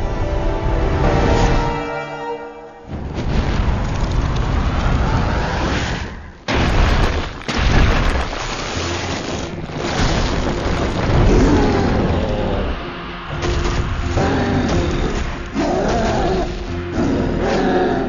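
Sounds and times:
booming blasts and impacts: 2.8s - 17.0s.

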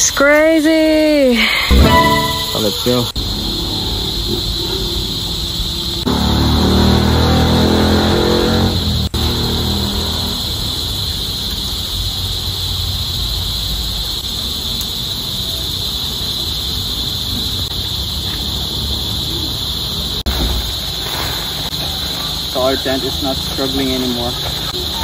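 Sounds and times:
insect chorus droning: 0.0s - 25.0s.

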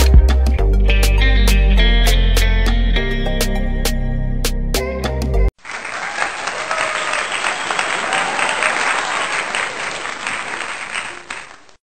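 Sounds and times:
crowd applauding: 5.6s - 11.8s.

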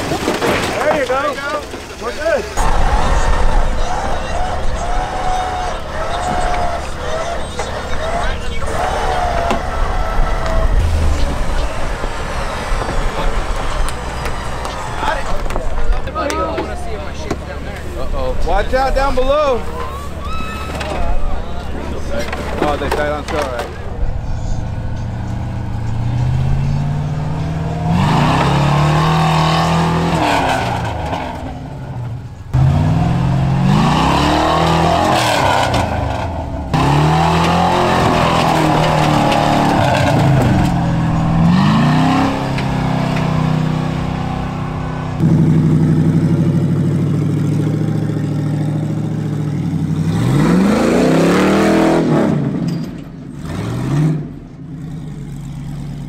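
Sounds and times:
pickup engine revving hard: 25.0s - 31.6s, 32.5s - 52.7s, 53.4s - 55.5s.

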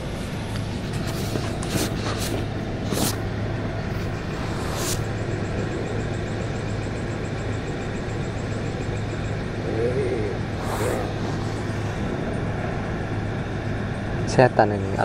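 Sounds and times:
rustling inside a tent: 0.0s - 3.2s
constant low hum: 0.0s - 15.0s.

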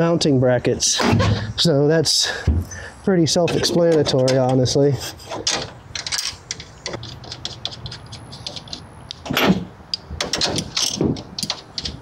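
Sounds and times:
metal hardware clicking and clinking: 3.4s - 12.0s.

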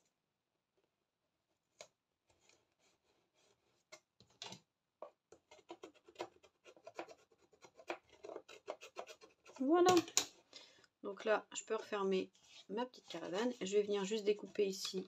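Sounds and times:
craft tool scraping paper card: 5.5s - 9.7s.

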